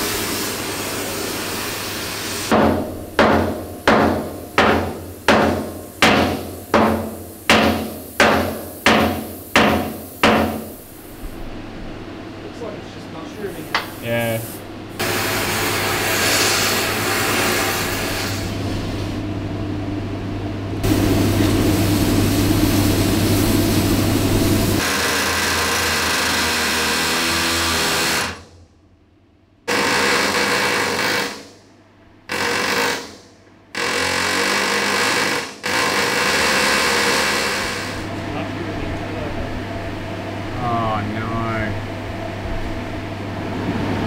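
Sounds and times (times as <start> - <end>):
power drill running into bolts: 29.7 - 31.4, 32.3 - 33.2, 33.8 - 38.0.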